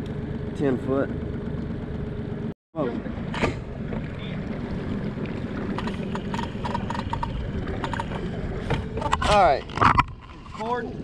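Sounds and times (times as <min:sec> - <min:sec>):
boat engine drone: 0:00.0 - 0:11.0
water rushing along hull: 0:00.0 - 0:11.0.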